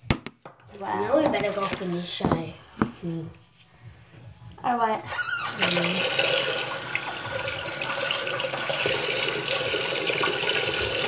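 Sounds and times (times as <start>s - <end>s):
running water: 5.2s - 11.0s.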